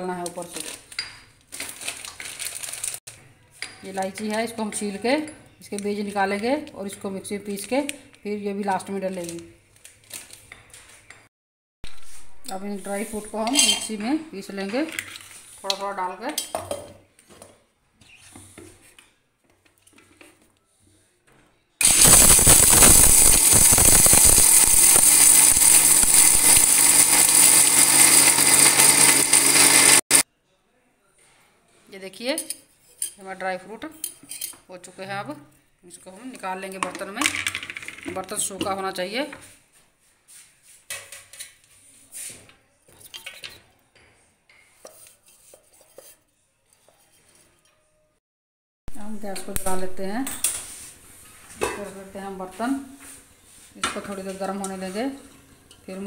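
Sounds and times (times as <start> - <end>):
handling of steel jar: 11.9 - 14.0
mixer grinder running: 21.8 - 30.2.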